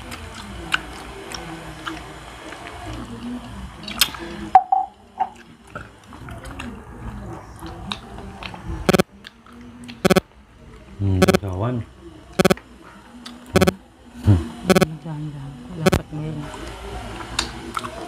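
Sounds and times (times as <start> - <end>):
chewing and mouth noises: 0.0 - 3.2, 3.8 - 4.2, 5.2 - 10.1, 17.2 - 18.0.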